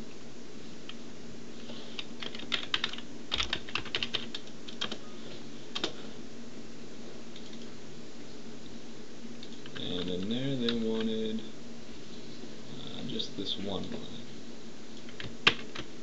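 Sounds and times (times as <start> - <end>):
steady low hum: 0.0 - 16.0
keyboard typing: 2.0 - 5.0, 5.7 - 6.0, 15.0 - 15.9.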